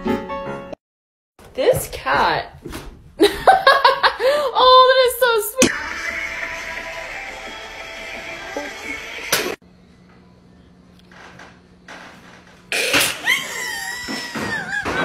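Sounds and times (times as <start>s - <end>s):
high-pitched screaming: 5.6s - 9.4s.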